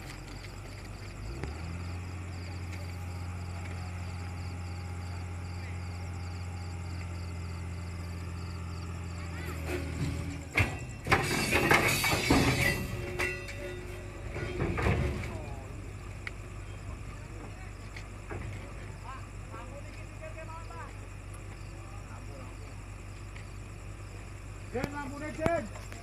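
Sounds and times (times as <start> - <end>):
heavy engine humming: 0.0 - 26.0
loud clattering crash: 9.6 - 15.6.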